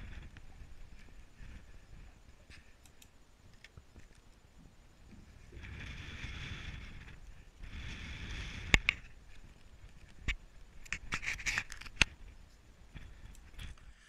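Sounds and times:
wind hiss on microphone: 0:00.0 - 0:14.0.

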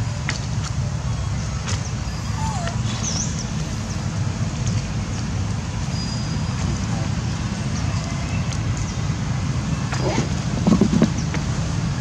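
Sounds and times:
faint high chirps: 0:02.1 - 0:03.5.

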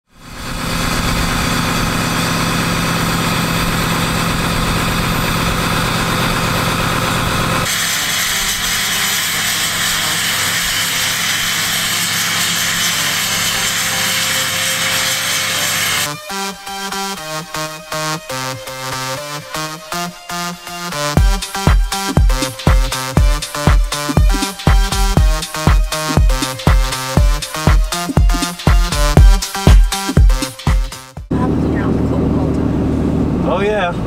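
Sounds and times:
diesel exhaust idling: 0:00.1 - 0:07.7, 0:31.3 - 0:34.0.

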